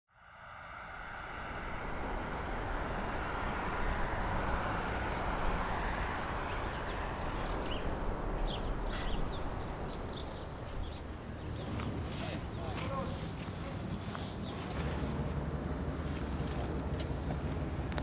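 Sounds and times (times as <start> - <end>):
steady rushing noise: 0.1 - 18.0
bird chirps: 6.5 - 14.8.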